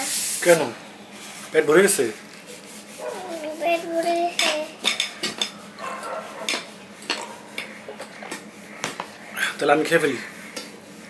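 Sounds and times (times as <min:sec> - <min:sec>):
fingers working food on metal plate: 0:02.5 - 0:09.2.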